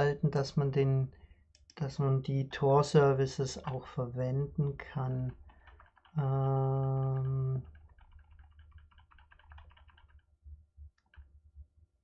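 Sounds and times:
keyboard keys tapping: 5.3 - 11.7.

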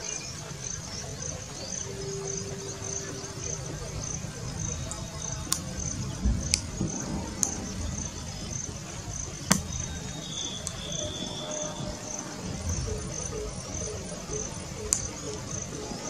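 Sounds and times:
insects trilling: 0.0 - 16.0
sharp clicks: 9.5 - 11.6, 14.8 - 15.4.

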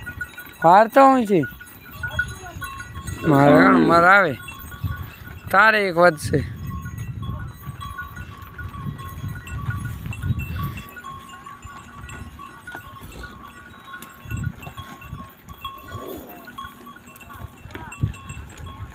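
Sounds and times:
small clinks: 0.0 - 18.9
cattle call: 1.7 - 4.6, 10.4 - 18.0.

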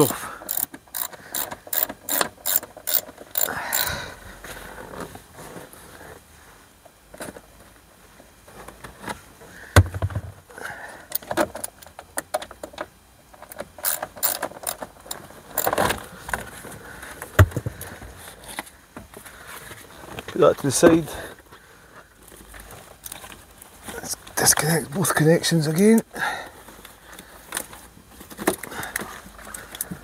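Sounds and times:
socket ratchet clicking: 0.4 - 3.9, 13.4 - 15.8.

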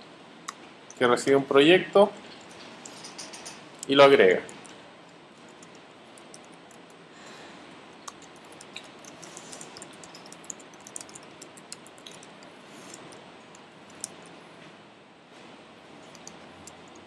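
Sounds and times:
steady low hiss: 0.0 - 17.0
keyboard typing clicks: 5.5 - 7.0, 8.0 - 14.3, 16.1 - 17.0.

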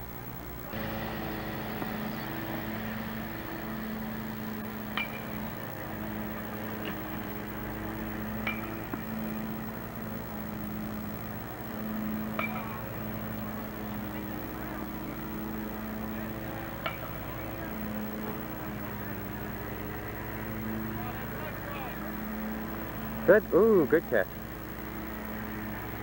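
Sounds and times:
steady low hum: 0.0 - 26.0
metal bat pinging on ball: 4.9 - 5.5, 8.4 - 9.1, 12.3 - 12.8.

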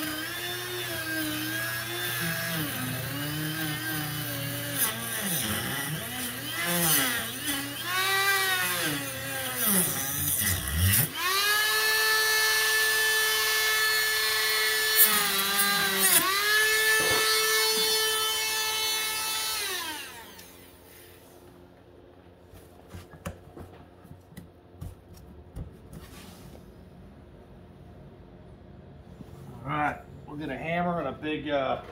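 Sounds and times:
rotary tool whining: 0.0 - 21.3.

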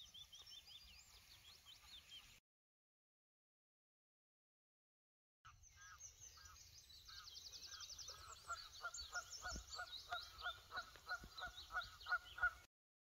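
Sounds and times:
songbirds singing: 0.0 - 2.4, 5.5 - 12.7
geese honking: 8.1 - 12.7.

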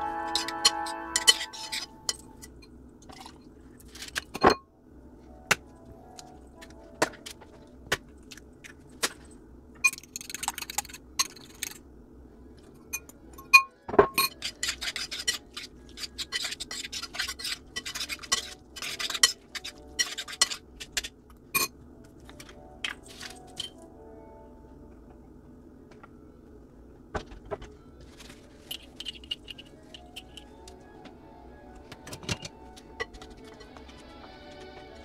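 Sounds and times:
fork scraping ceramic bowl: 0.3 - 2.5, 14.2 - 21.1.

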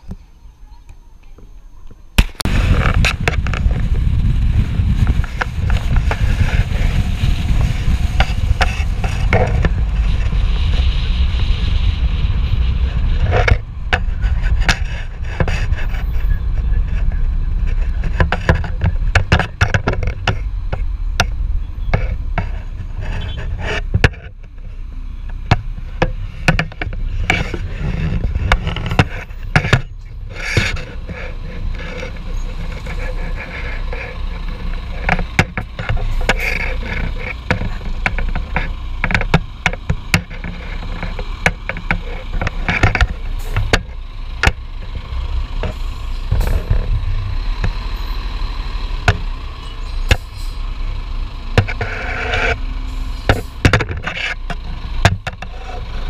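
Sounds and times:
car road noise: 0.0 - 56.0
low wind rumble: 0.0 - 56.0
sharp knocks and rattles: 17.6 - 24.7, 25.3 - 47.9, 53.3 - 56.0.

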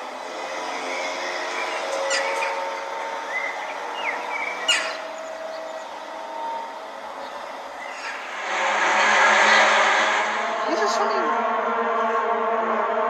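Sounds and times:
drone of horn-like tones: 0.0 - 13.0
bird chirps: 0.9 - 8.3.

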